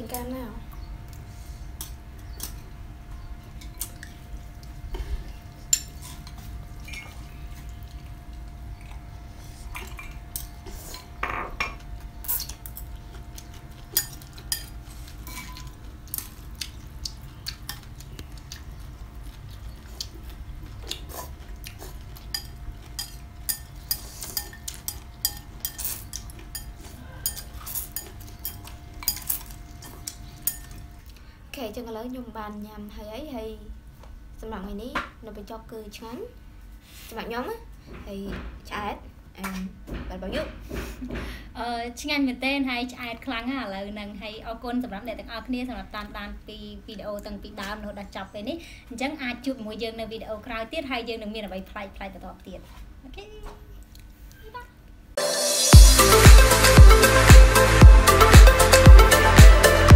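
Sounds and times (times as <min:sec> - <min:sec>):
crunching raw vegetables: 0:11.8 - 0:31.3
chopsticks clinking on ceramic bowls: 0:14.0 - 0:15.8, 0:22.2 - 0:30.8.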